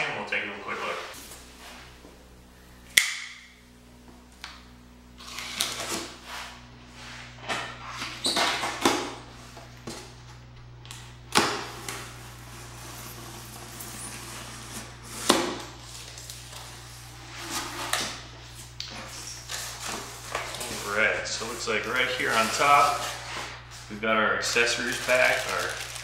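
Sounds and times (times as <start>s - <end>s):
cardboard flaps ripping open: 24.8s - 26.0s.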